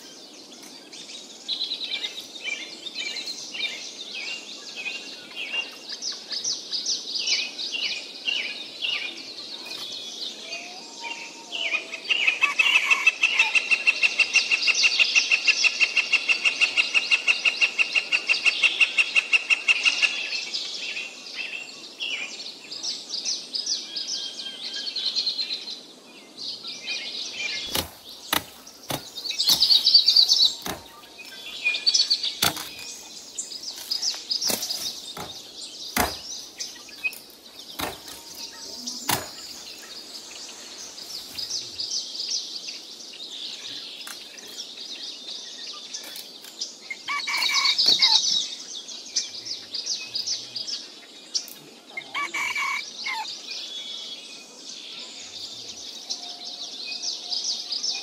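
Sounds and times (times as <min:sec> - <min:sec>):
birds chirping: 0:00.0 - 0:58.0
sharp knocks: 0:30.6 - 0:31.1, 0:32.4 - 0:32.8, 0:36.0 - 0:36.3, 0:37.8 - 0:38.4, 0:39.1 - 0:39.4.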